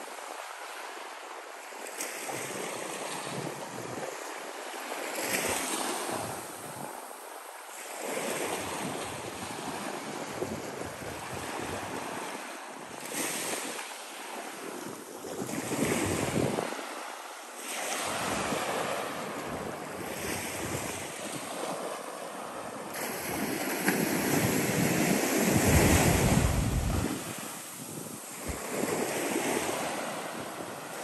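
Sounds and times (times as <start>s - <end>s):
wind buffeting microphone: 14.8s - 17.0s, 18.0s - 21.8s, 22.9s - 31.0s
small surf breaking on sand: 15.4s - 31.0s.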